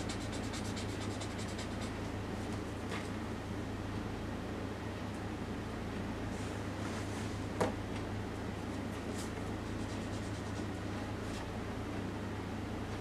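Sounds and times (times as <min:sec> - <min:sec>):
pencil scratching on paper: 0:00.0 - 0:02.0, 0:09.7 - 0:10.7
steady low hum: 0:00.0 - 0:13.0.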